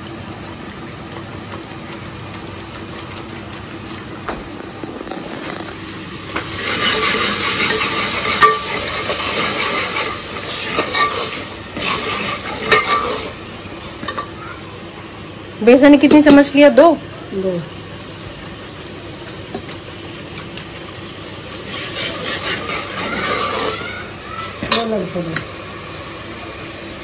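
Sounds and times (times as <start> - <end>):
food sizzling in a pot: 2.2 - 27.0
ladle scraping a pot: 6.4 - 13.4, 21.6 - 23.9
whisk clinking in steel bowl: 6.7 - 13.2.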